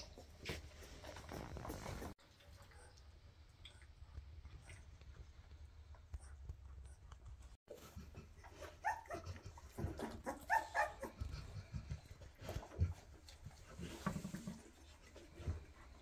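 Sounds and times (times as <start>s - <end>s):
puppies whimpering and squealing: 7.8s - 12.7s.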